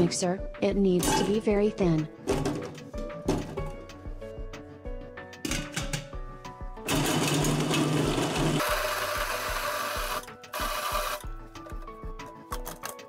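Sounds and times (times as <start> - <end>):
background music with steady beat: 0.0 - 13.0
electric food chopper running: 6.9 - 11.3.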